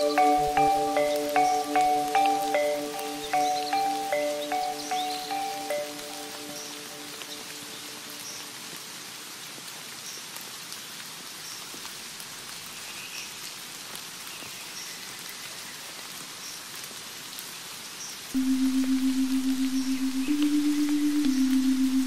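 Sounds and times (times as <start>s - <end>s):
rain falling on leaves: 0.0s - 22.0s
low sustained music note: 18.4s - 22.0s.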